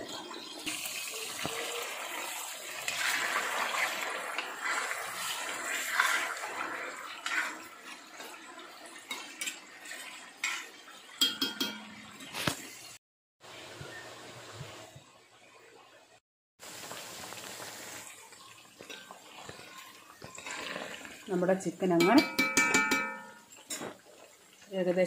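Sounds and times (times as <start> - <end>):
chicken sizzling in oil: 0.0 - 11.5, 16.6 - 25.0
metal spoon scraping pan: 2.8 - 8.4, 9.0 - 11.9, 22.0 - 24.0
spoon clinking on pan: 10.4 - 12.0, 22.0 - 23.9.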